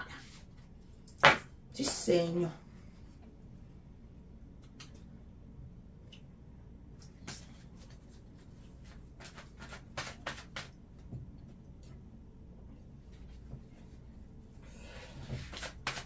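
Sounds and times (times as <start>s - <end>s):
low room hum: 0.0s - 16.0s
cards rustling and tapping: 8.8s - 10.8s.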